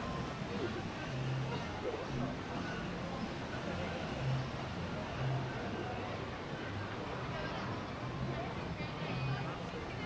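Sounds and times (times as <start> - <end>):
distant crowd murmur: 0.0 - 10.0.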